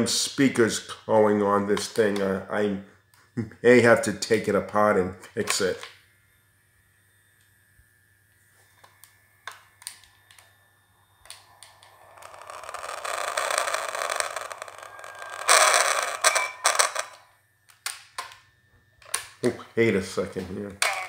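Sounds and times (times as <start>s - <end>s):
hissing crackling speaker noise: 9.5s - 17.3s.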